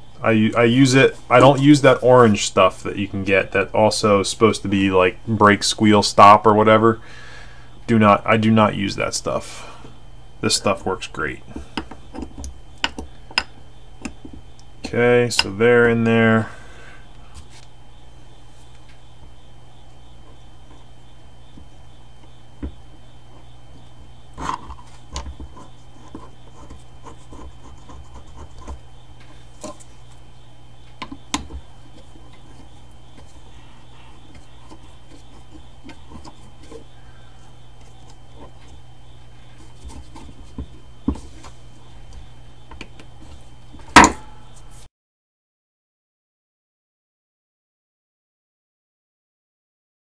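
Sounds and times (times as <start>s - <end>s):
steady low hum: 0.0s - 44.9s
tools set down on bench: 43.8s - 44.3s.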